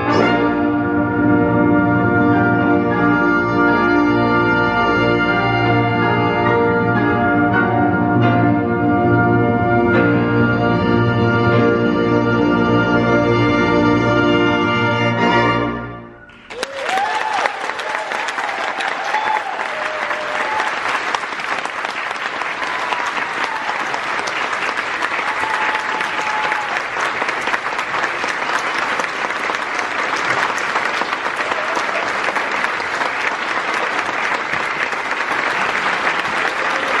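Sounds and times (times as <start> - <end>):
audience applauding: 16.3 - 37.0.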